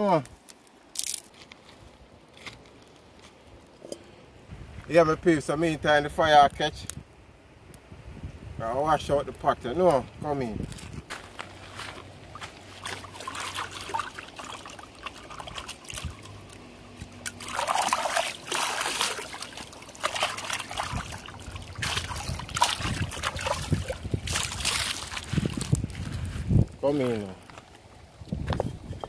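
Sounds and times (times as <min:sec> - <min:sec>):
water sloshing and splashing: 0:11.7 - 0:26.6.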